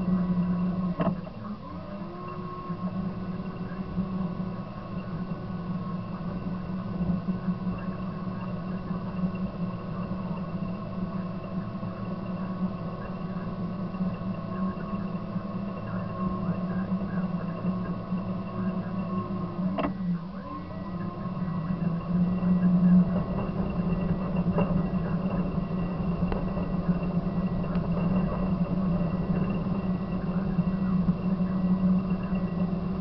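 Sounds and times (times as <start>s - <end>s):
bulldozer diesel engine running: 20.2s - 33.0s.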